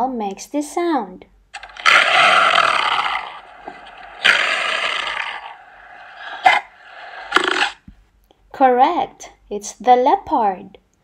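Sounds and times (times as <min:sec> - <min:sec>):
leopard calling: 0:01.6 - 0:07.8.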